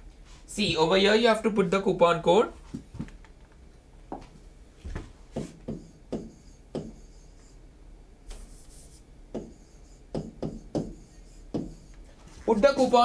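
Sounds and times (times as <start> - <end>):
taps and scrapes on touchscreen: 5.4 - 7.6, 8.3 - 12.1.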